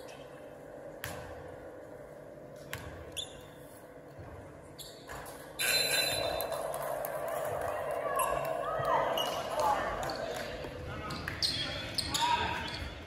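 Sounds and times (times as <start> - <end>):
crowd voices and shouting: 5.6 - 13.0.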